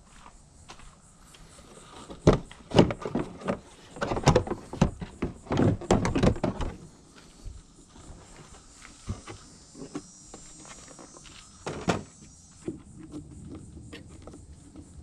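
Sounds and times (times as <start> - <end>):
plastic panel clattering: 2.2 - 6.8.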